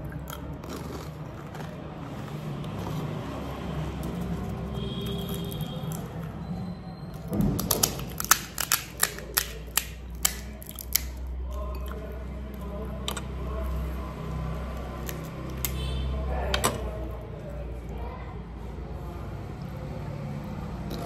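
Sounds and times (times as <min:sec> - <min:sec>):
crisp shell cracking clicks: 0:07.6 - 0:11.2.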